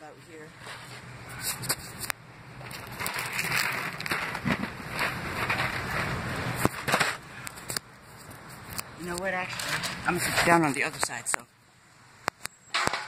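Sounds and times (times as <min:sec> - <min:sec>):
phone scraping against concrete: 0:02.7 - 0:11.2.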